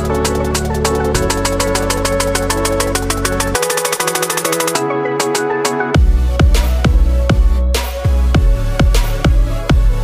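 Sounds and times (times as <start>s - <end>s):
electronic music with fast drum beat: 0.0s - 10.0s.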